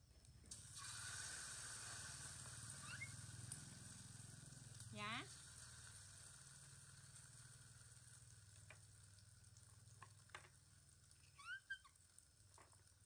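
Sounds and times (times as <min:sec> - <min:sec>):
food sizzling in a wok: 0:00.5 - 0:13.0
monkey squeak: 0:02.8 - 0:03.1, 0:11.2 - 0:11.9.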